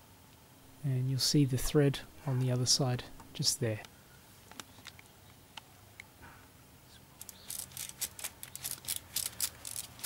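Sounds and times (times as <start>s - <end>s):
ratchet wrench clicking: 7.2s - 10.0s.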